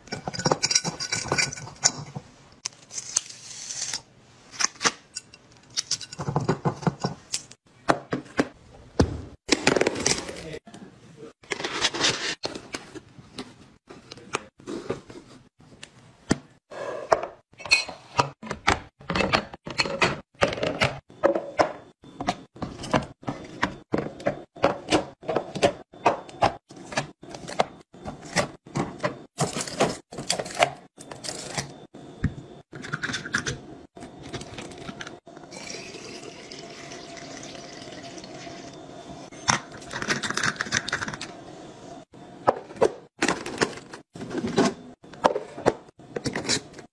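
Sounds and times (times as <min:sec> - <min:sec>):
items being handled and set down: 0:03.9 - 0:10.6, 0:11.4 - 0:35.5, 0:42.4 - 0:46.9.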